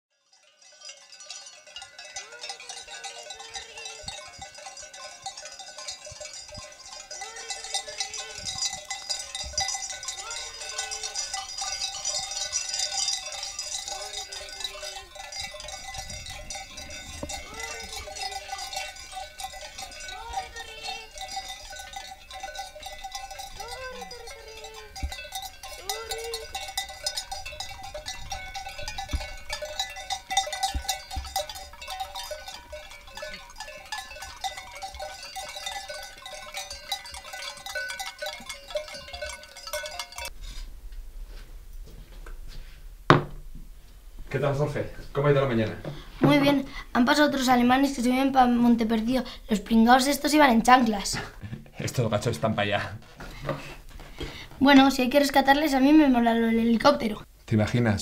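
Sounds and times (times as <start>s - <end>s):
goat bells clanking: 0.1s - 40.6s, 45.2s - 57.2s
goats bleating: 17.3s - 21.3s, 23.6s - 26.9s.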